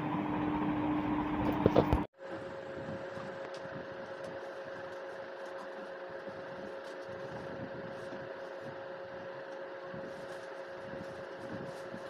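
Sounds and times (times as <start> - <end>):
machine hum with whining tone: 0.0 - 12.0
cardboard packaging rustling: 3.0 - 12.0.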